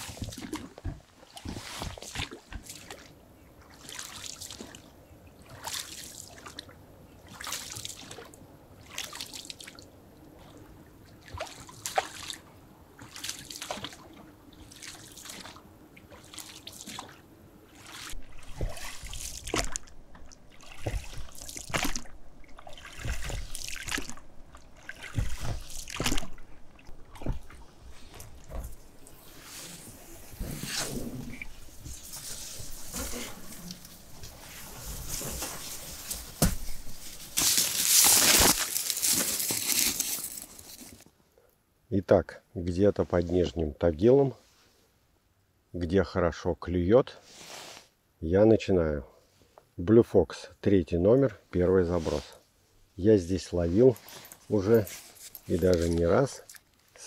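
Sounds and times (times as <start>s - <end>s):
oars splashing and dripping: 0.0s - 29.3s.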